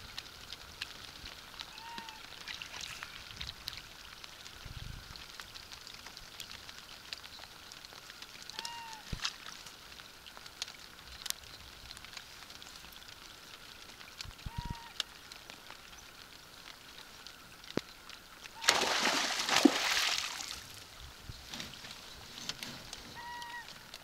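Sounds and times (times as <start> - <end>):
light ticks: 0.1 - 18.5
rustling handling noise: 21.4 - 23.2.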